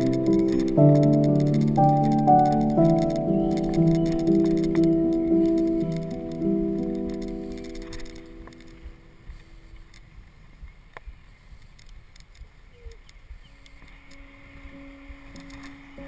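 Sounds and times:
background music: 0.0 - 9.4, 13.8 - 16.0
light clicks: 0.0 - 10.2, 10.9 - 15.8
wind and road noise: 0.0 - 16.0.

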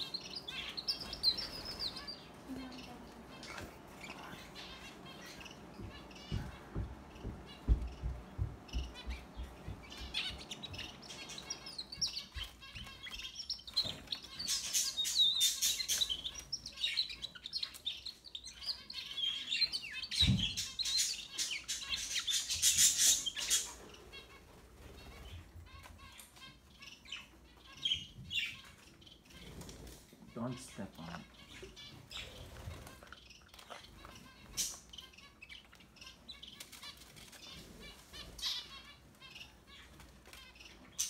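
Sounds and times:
canary singing trills: 0.0 - 41.0
dull knock: 5.8 - 10.7.

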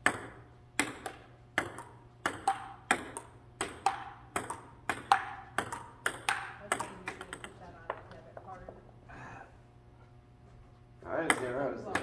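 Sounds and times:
table tennis ball clicking: 0.1 - 8.2.

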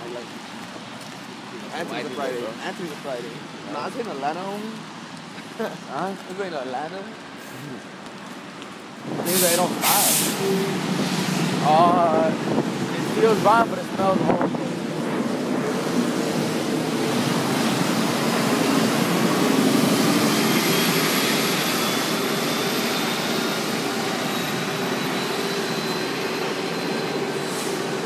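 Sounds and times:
tyres hissing on wet street: 0.0 - 28.0
bus engine running: 7.2 - 28.0.

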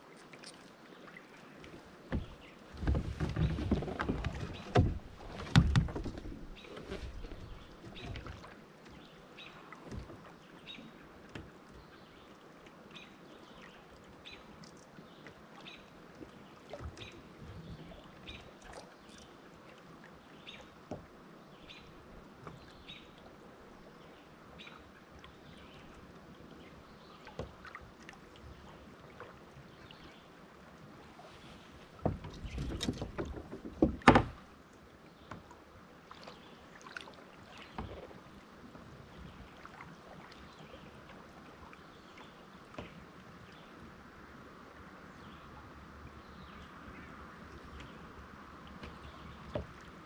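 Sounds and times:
water along kayak hull: 0.0 - 50.0
soft knocks: 2.1 - 6.4, 32.0 - 34.4.

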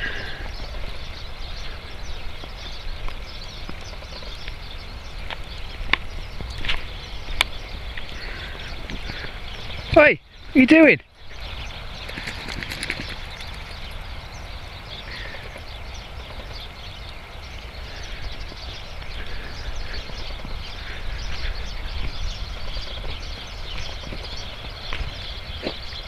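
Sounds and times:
wind rumbling on microphone: 0.0 - 26.0
footsteps crunching on snow: 17.6 - 26.0.

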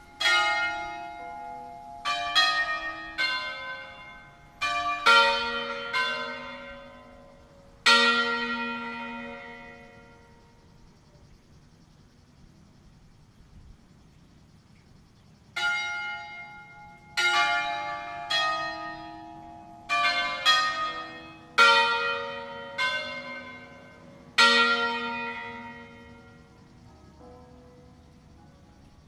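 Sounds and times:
church bells ringing: 0.0 - 10.5, 15.6 - 26.5.

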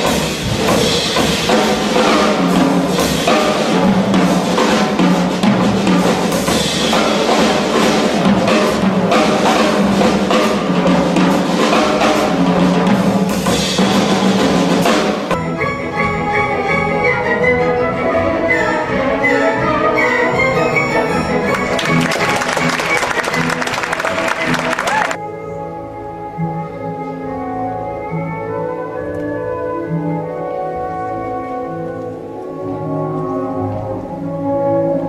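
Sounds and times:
drum kit playing rapid strokes: 0.0 - 17.2, 20.0 - 25.2
live band music: 0.0 - 35.0.

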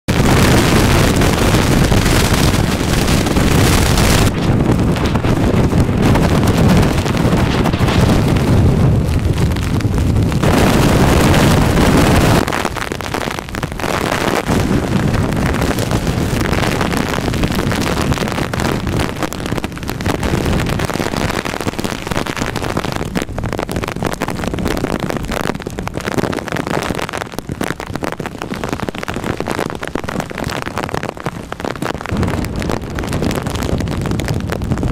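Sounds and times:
heavy rain: 0.0 - 34.9
strong wind gusting: 0.1 - 34.9
wind buffeting microphone: 0.1 - 34.9.

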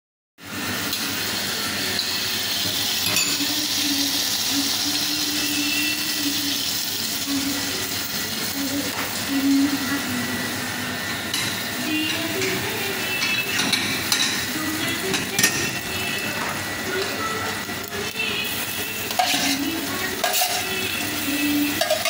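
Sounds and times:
gas burner: 0.4 - 22.0
utensils clinking: 1.9 - 4.0, 11.4 - 17.2, 19.0 - 22.0.

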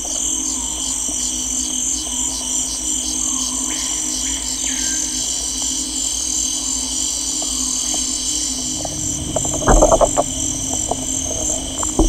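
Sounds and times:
insect chorus: 0.0 - 12.0
low steady hum: 7.2 - 12.0
loud clicks and croaks: 7.3 - 12.0.

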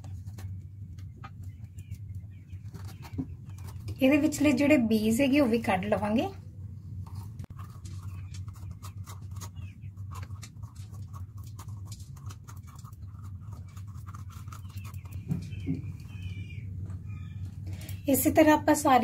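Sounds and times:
low hum: 0.0 - 19.0.

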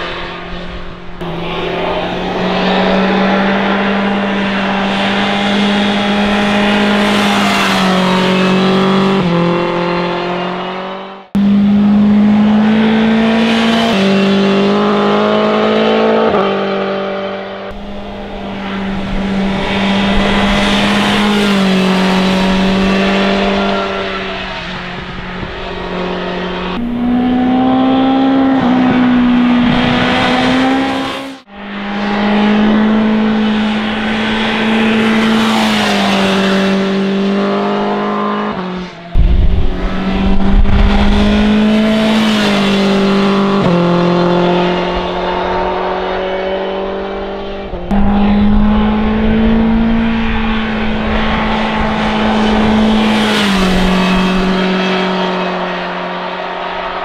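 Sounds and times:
motorcycle engine revving: 0.0 - 56.0
loud low rumble: 39.2 - 43.4.

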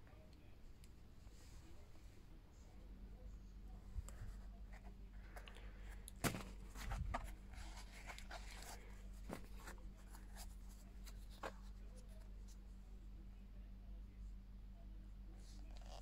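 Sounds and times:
shoe box scuffing and rustling: 6.2 - 11.7.

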